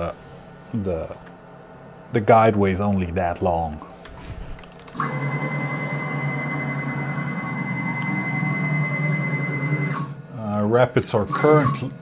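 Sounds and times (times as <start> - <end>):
stepper motor machine whine: 5.0 - 12.0.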